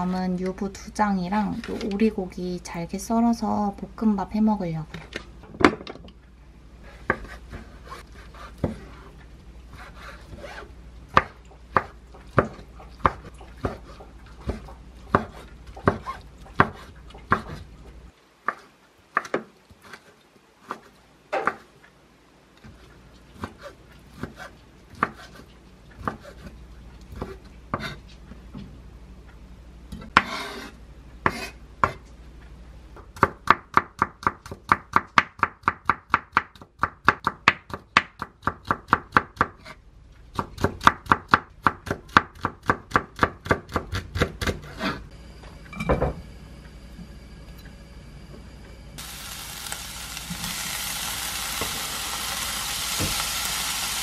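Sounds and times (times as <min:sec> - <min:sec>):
knife scraping board: 0:06.8 - 0:10.7, 0:30.2 - 0:31.6, 0:44.4 - 0:45.1
knife chopping on wooden board: 0:09.8 - 0:17.6.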